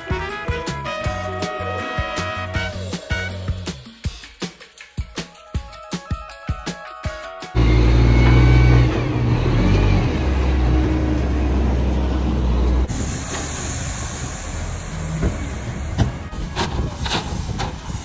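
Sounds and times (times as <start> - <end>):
diesel truck engines running: 7.6 - 18.0
hiss: 12.9 - 18.0.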